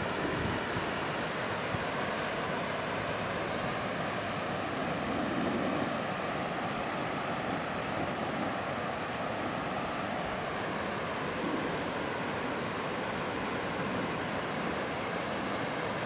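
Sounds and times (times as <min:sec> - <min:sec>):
waterfall rushing over rocks: 0:00.0 - 0:05.1, 0:05.8 - 0:16.0.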